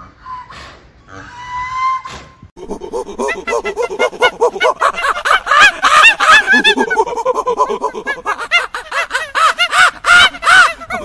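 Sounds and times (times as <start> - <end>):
monkeys chattering: 2.6 - 11.0.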